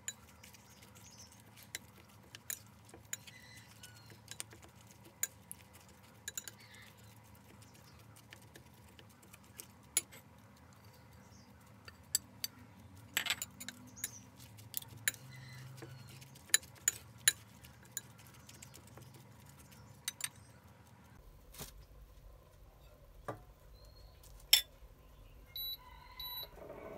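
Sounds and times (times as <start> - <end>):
cutlery clinking on ceramic plate: 13.2 - 14.2.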